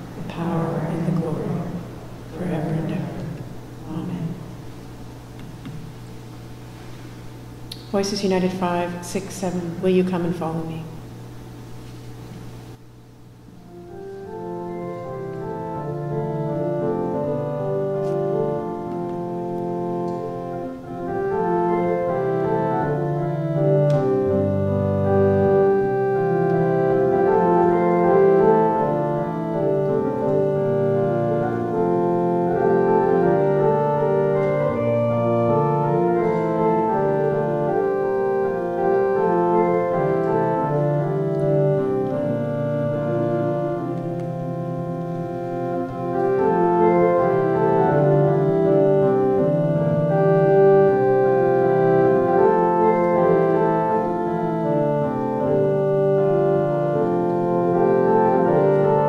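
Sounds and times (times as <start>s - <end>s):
organ playing hymn chords: 0.0s - 59.0s.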